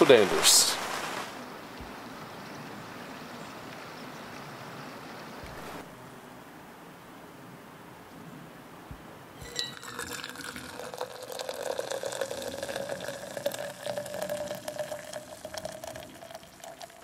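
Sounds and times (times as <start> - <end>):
coffee pouring into metal tumbler: 9.4 - 17.0.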